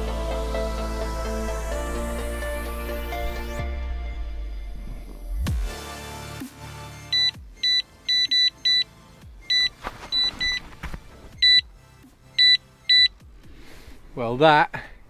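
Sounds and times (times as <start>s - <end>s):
bite alarm beeps: 6.9s - 10.6s, 11.4s - 11.7s, 12.4s - 13.2s.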